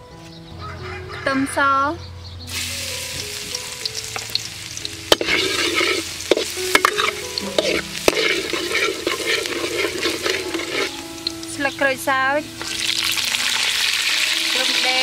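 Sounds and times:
garlic sizzling in oil: 2.5s - 15.0s.

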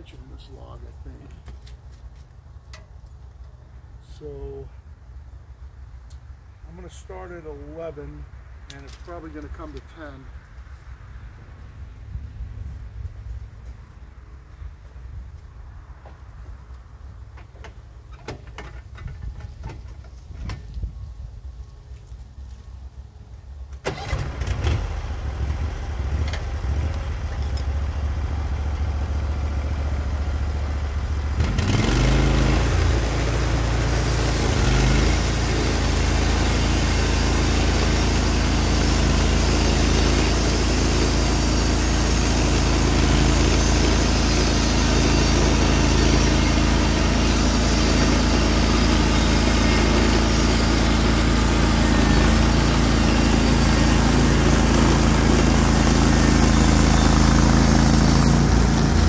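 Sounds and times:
gas engine idling and revving: 23.9s - 59.0s
saw blade hissing through log: 33.7s - 58.6s.

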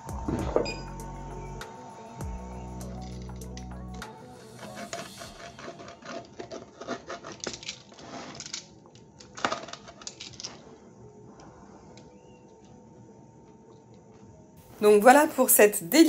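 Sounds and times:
pizza cutter crunching crust: 4.6s - 8.7s.

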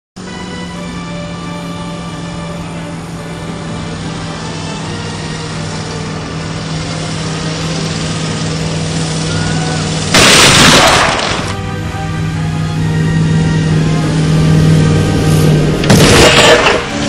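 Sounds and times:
background music: 0.2s - 17.0s
vehicle crashing into barrier: 10.1s - 11.6s, 15.8s - 17.0s.

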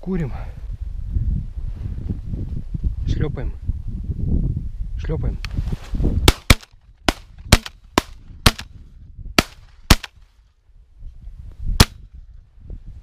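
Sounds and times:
shotgun shots: 6.3s - 8.7s, 9.4s - 10.2s.

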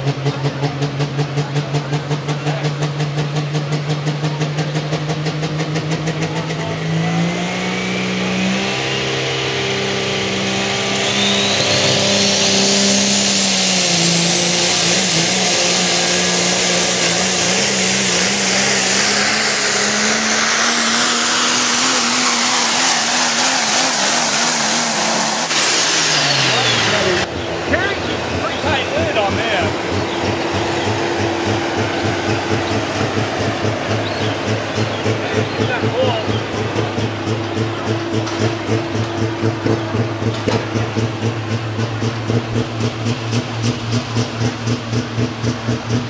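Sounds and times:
diesel truck engine pulsing and revving: 0.0s - 46.0s
turbocharger whistle: 7.1s - 28.8s.

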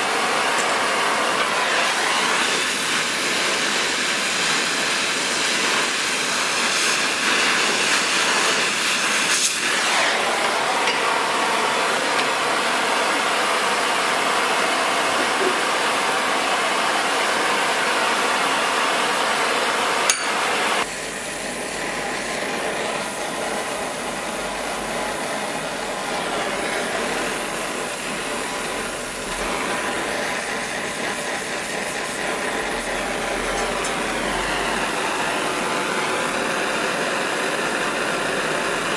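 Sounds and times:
torch flame hissing: 0.0s - 38.9s.

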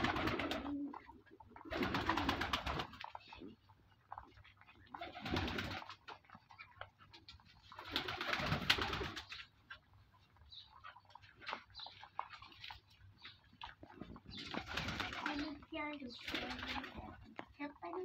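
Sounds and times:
pigeon cooing: 0.0s - 6.7s.

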